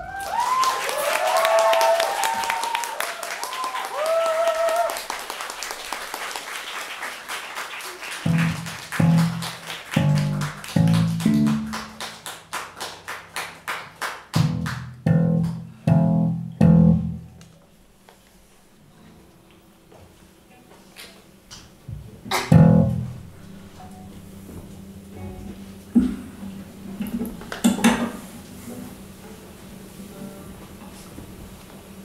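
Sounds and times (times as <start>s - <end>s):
low pulsing bass notes: 8.3s - 12.0s, 14.4s - 17.4s, 22.5s - 27.5s
acoustic guitar strumming: 22.5s - 28.4s.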